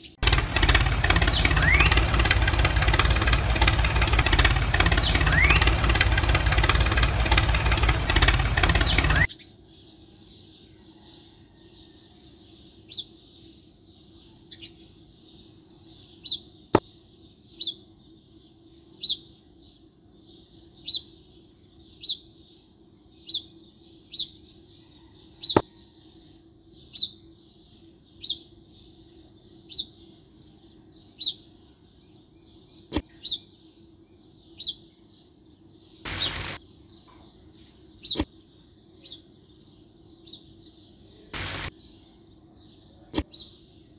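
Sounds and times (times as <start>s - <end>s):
small engine running: 0.0s - 9.3s, 36.1s - 36.6s, 41.4s - 41.7s
bird chirping: 0.0s - 43.9s
sharp clicks: 0.2s - 9.3s, 36.1s - 36.6s, 41.4s - 41.7s.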